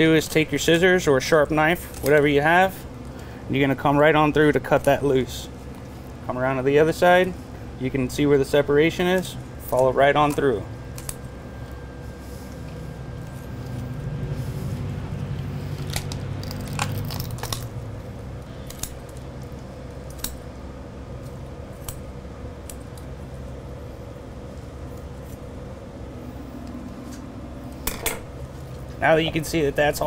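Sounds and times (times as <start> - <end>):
shears snipping and crunching bone: 15.7 - 17.7, 18.6 - 19.2, 20.0 - 20.4.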